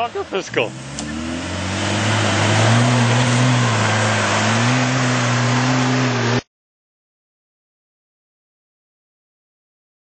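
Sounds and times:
truck engine pulling hard: 0.0 - 6.4.

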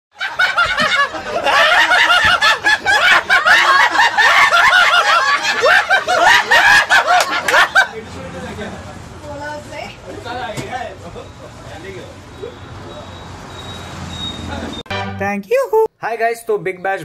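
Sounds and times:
group of people laughing: 0.2 - 9.0.

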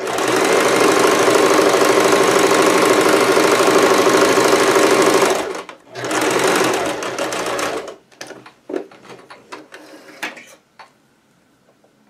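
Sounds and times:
sewing machine stitching: 0.0 - 8.0.

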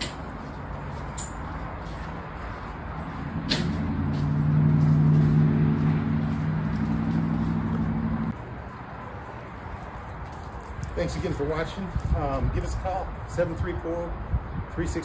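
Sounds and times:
engine humming: 0.0 - 8.7.

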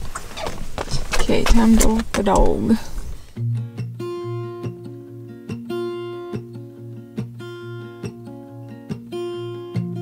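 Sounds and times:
acoustic guitar strumming: 3.2 - 10.0.

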